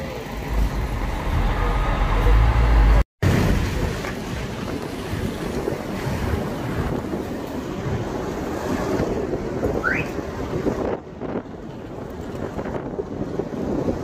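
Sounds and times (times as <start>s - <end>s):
road and traffic noise: 0.0s - 14.0s
heavy low rumble: 0.1s - 9.7s
wind buffeting microphone: 3.2s - 14.0s.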